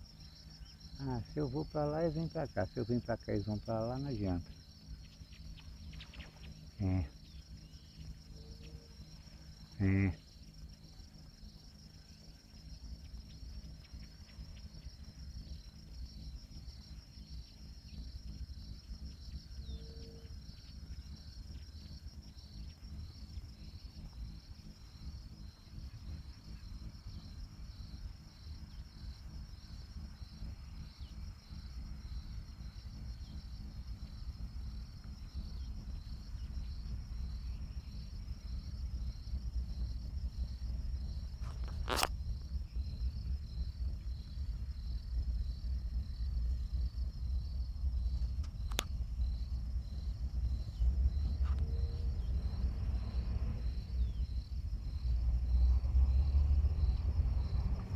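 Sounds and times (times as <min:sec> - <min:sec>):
insects chirping: 0:00.0 - 0:57.9
low microphone rumble: 0:23.0 - 0:57.9.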